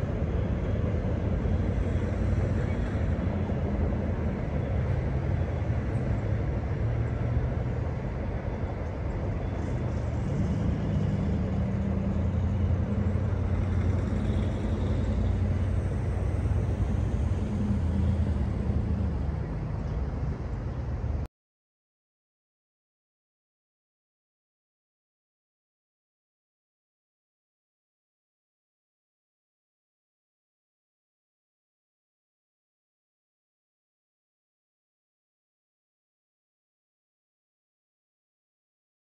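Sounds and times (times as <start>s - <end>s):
diesel locomotive engine rumble: 0.0s - 21.3s.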